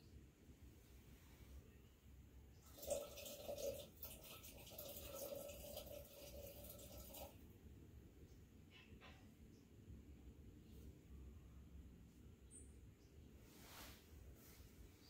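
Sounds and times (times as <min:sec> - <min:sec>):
water trickling into kettle: 0:02.6 - 0:07.4.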